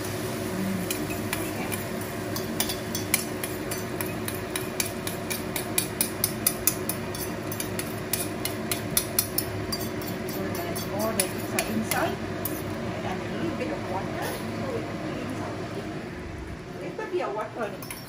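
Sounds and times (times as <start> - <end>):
steady low hum: 0.0 - 18.0
fork scraping against bowl: 0.9 - 12.8.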